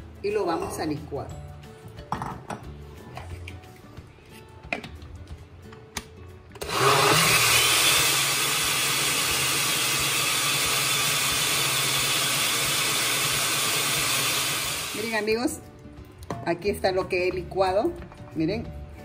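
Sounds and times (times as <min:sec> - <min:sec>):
blender motor whirring: 0:06.6 - 0:15.1.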